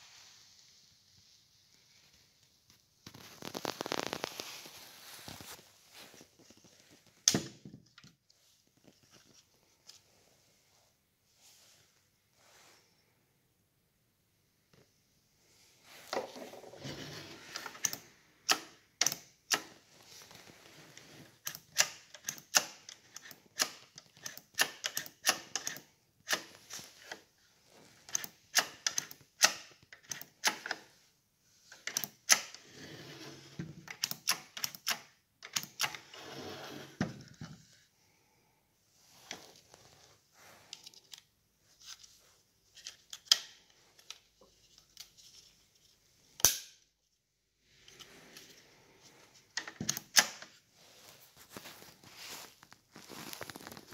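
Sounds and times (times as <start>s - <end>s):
plastic rustling: 3.1s - 7.2s, 50.8s - 53.9s.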